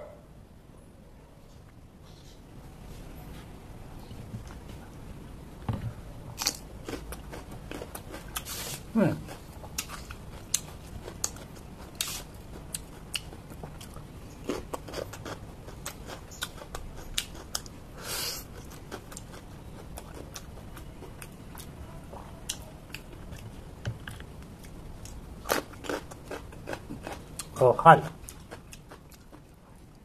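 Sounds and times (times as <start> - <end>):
chewing raw vegetables: 6.4 - 17.8, 18.4 - 30.0.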